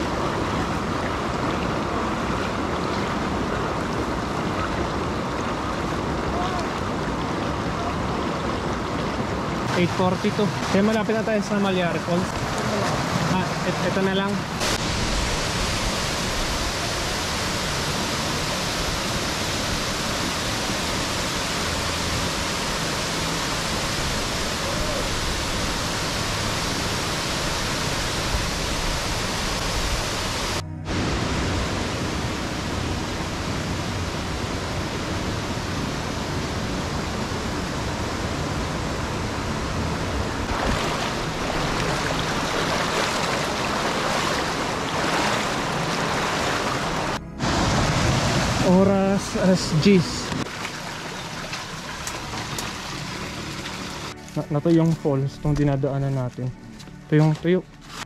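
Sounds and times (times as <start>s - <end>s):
feet wading through stream: 0.0s - 30.7s, 40.5s - 48.6s, 50.2s - 55.1s
waterfall rushing: 0.0s - 54.6s.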